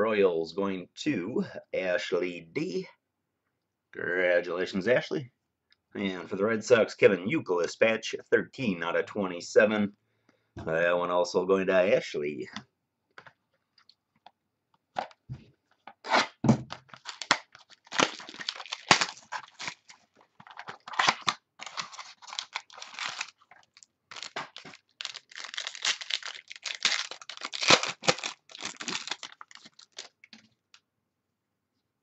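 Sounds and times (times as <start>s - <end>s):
packaging tearing and crinkling: 16.0s - 30.4s.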